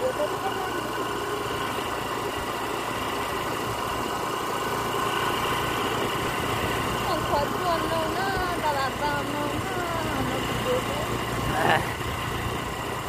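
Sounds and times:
road and wind noise: 0.0s - 13.0s
small motorcycle engine running: 0.0s - 13.0s.

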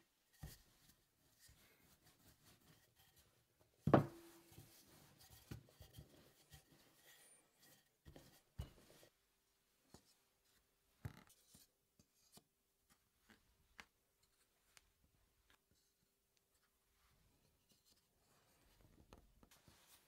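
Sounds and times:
rolling pin knocks on wooden table: 3.9s - 4.3s.

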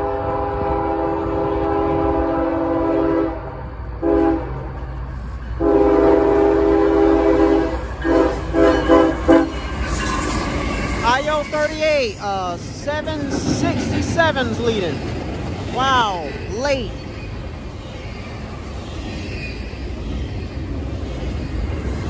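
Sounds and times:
locomotive air horn blasts: 0.0s - 4.6s, 5.6s - 9.6s
train rumble: 0.0s - 22.0s.

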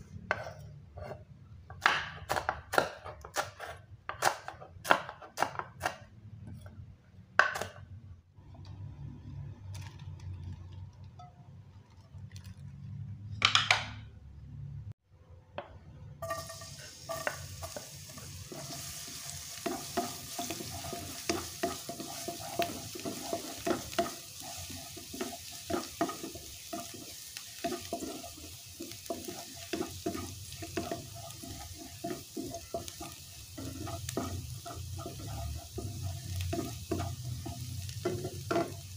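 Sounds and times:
spatula stirring and scraping: 0.0s - 1.3s, 16.2s - 38.9s
knife chopping on wooden board: 1.7s - 6.0s
garlic sizzling in oil: 16.2s - 38.9s.

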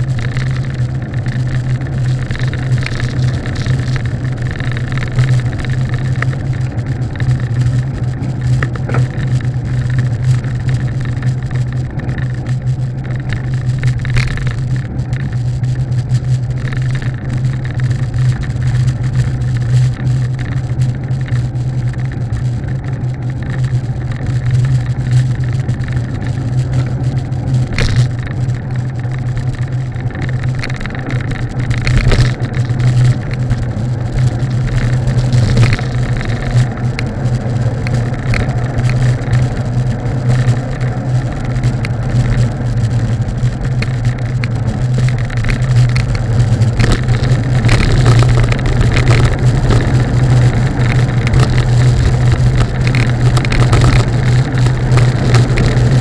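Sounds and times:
constant low hum: 0.0s - 56.0s
road and wind noise: 0.0s - 56.0s.

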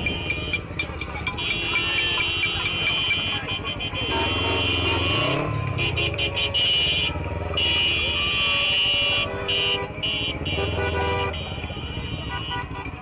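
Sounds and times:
car engines idling: 0.0s - 13.0s
car horns honking: 0.0s - 13.0s.

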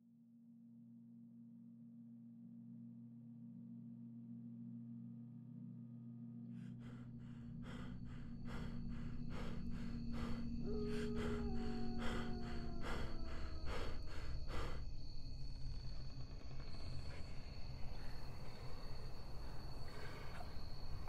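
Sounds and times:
low sustained drone: 6.6s - 21.0s
rapid heavy panting: 6.8s - 14.8s.

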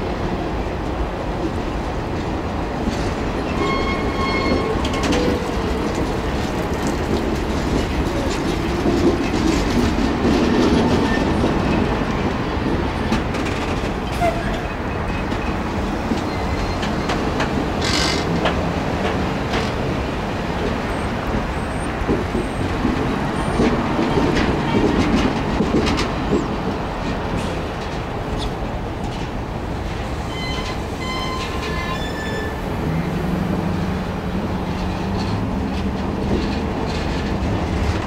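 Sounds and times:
train wheels clicking over rails: 0.8s - 38.0s.

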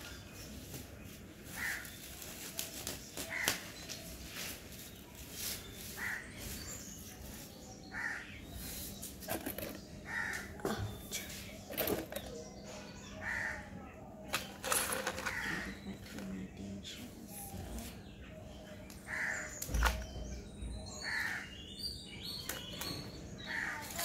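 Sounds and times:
plant rustling and crackling: 0.0s - 7.6s
crow cawing: 1.6s - 1.8s, 3.3s - 3.6s, 7.9s - 8.3s, 10.1s - 10.5s, 13.2s - 13.7s, 19.1s - 19.6s.

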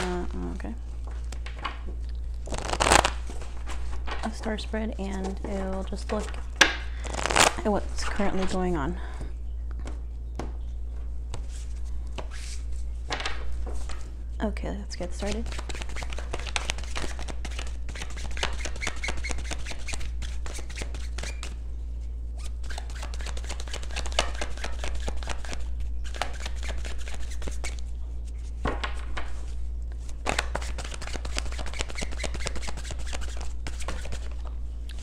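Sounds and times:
cards shuffled by hand: 1.0s - 4.4s, 5.0s - 8.6s, 15.1s - 21.6s, 22.4s - 35.0s.

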